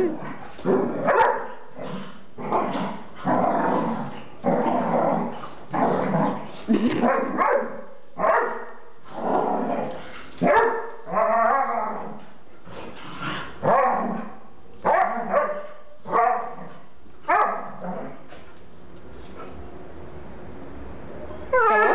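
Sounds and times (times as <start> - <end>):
dogs growling: 0.0 - 7.3, 9.0 - 14.4
dogs barking: 1.0 - 1.7, 7.0 - 8.8, 10.4 - 11.0, 14.8 - 16.6, 17.3 - 17.8.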